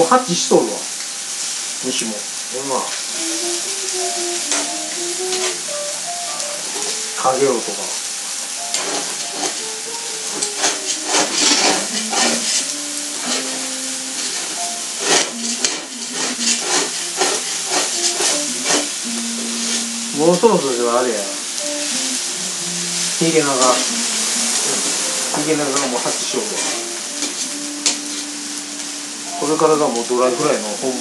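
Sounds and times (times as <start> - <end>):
food sizzling on barbecue plate: 0.0 - 31.0
utensils scraping: 4.0 - 7.5, 8.5 - 19.9, 23.2 - 30.5.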